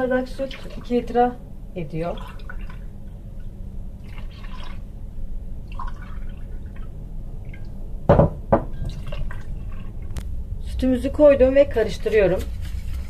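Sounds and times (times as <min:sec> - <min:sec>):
sharp knocks: 0:08.1 - 0:08.7.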